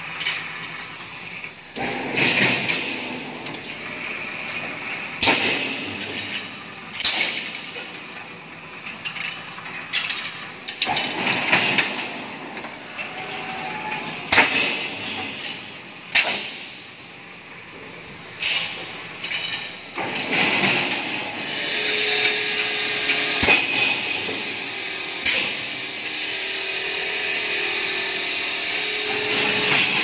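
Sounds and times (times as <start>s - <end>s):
steady background noise: 0.0s - 30.0s
welding machine running: 17.9s - 30.0s.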